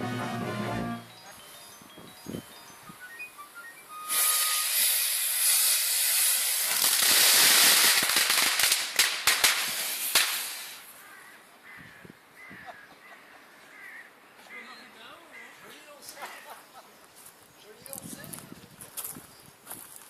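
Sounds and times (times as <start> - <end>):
rocket motor hissing: 3.9 - 8.0, 9.5 - 10.9
rocket motor crackles: 4.0 - 10.8.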